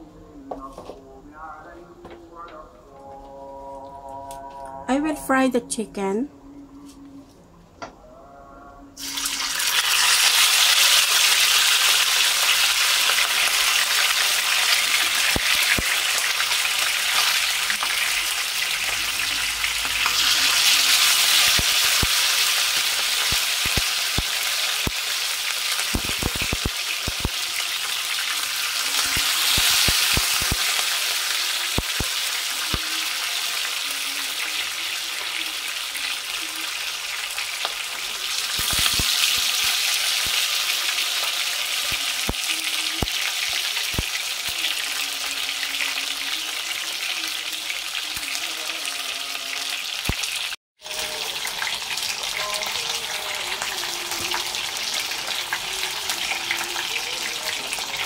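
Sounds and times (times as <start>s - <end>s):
oil popping and crackling: 9.0s - 33.7s, 37.1s - 44.8s
chicken sizzling in hot oil: 9.0s - 58.0s.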